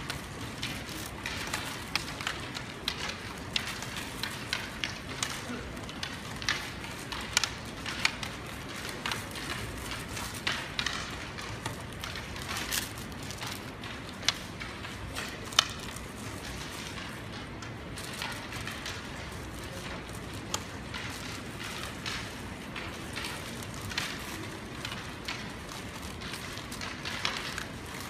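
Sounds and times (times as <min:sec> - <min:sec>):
crowded hall noise: 0:00.0 - 0:28.0
go stones clicking on wooden boards: 0:00.0 - 0:28.0.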